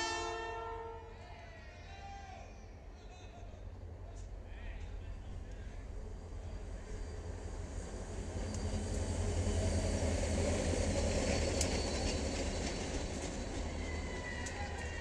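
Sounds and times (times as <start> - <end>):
diesel locomotive engine rumble: 0.0 - 15.0
high squeal: 8.4 - 15.0.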